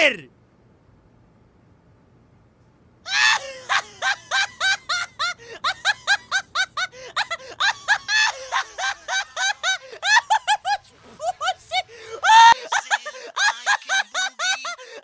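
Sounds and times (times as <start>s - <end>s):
cartoon voice laughing mockingly: 3.1s - 15.0s.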